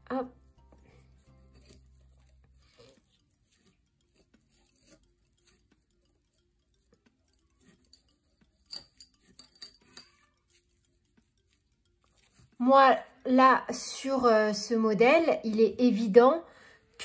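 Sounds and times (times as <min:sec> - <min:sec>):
metal hook clicking on glass: 0:07.3 - 0:10.5.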